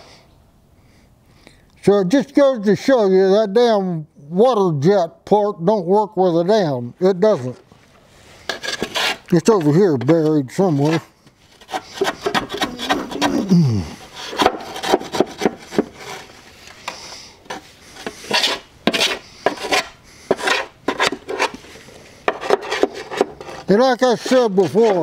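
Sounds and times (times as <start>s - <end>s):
metal bar scraping dried dirt: 7.2s - 25.0s.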